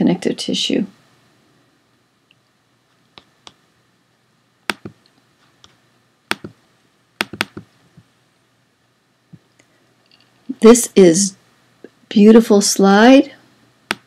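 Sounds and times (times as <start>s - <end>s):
computer mouse clicks: 4.7s - 6.6s, 7.2s - 8.1s.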